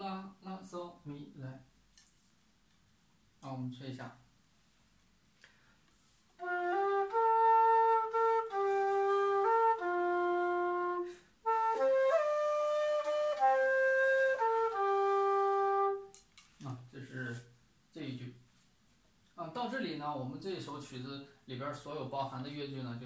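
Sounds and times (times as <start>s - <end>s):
breath between phrases: 5.4s - 6.2s
bamboo flute slow melody: 6.4s - 16.2s.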